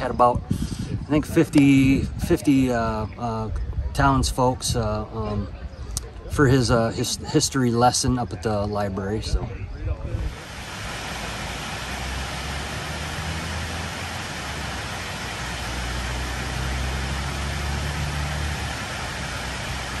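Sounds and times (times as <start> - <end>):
low hum: 10.3 - 20.0
water pouring over dam: 10.3 - 20.0.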